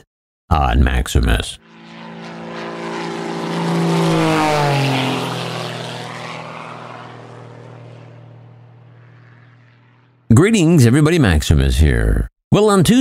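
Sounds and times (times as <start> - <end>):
airplane flying past: 1.6 - 10.4.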